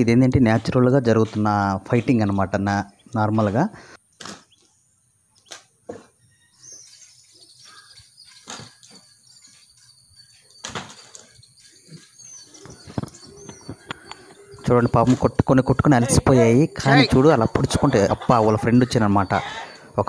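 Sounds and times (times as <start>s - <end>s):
small birds chirping: 0.0s - 20.0s
roosters flapping and scuffling: 8.2s - 9.9s, 10.6s - 14.4s.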